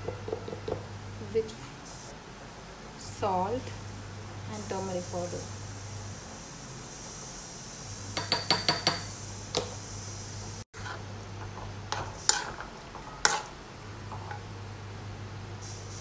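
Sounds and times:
stirring knocks and scrapes: 0.0s - 0.9s, 10.8s - 14.5s.

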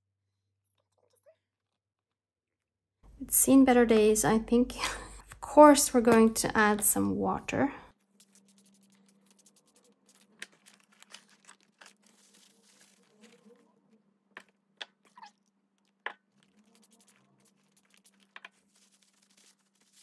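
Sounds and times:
paper rustling: 8.0s - 13.8s, 16.3s - 20.0s.

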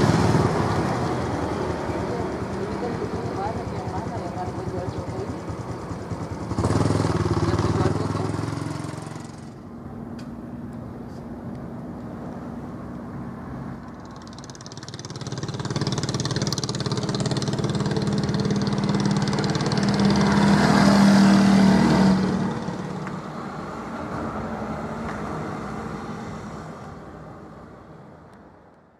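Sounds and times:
motor engine running: 0.0s - 9.6s.

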